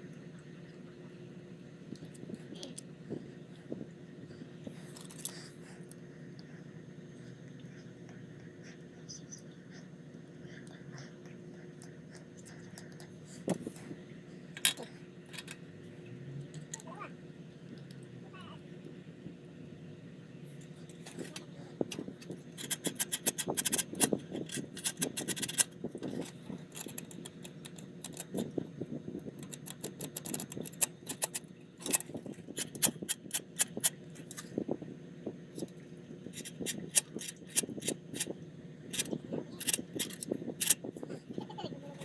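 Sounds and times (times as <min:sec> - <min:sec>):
faint steady hum: 0:00.0 - 0:42.0
small hard objects clicking and rattling: 0:22.6 - 0:28.5, 0:29.3 - 0:34.4.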